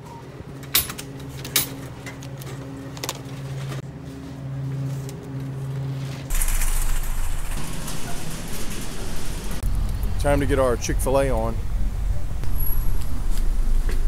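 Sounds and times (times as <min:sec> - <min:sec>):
low steady hum: 0:00.0 - 0:14.0
outdoor rush with low rumble: 0:06.3 - 0:14.0.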